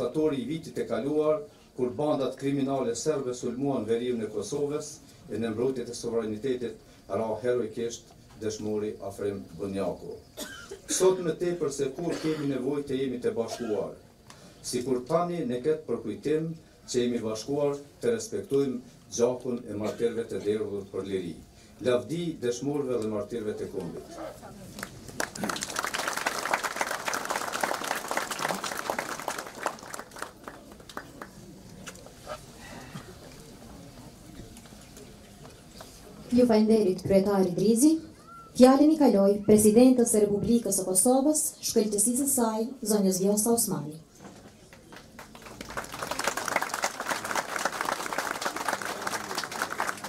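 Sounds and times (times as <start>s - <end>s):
audience applauding: 24.8s - 31.5s, 44.7s - 50.0s.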